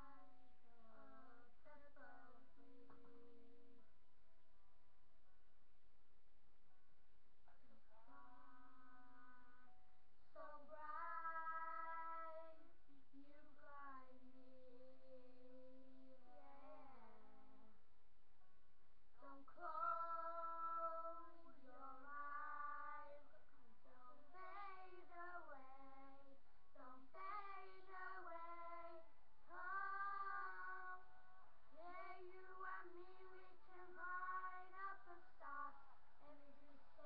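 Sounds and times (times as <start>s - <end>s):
high voice singing unaccompanied: 10.4s - 17.7s, 19.2s - 31.2s, 31.8s - 37.0s.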